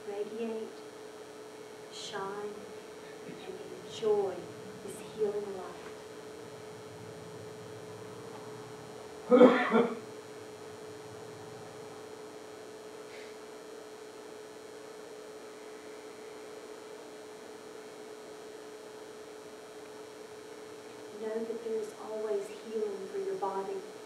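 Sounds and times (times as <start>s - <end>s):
electrical hum: 0.0s - 24.0s
person clearing throat: 9.3s - 10.0s.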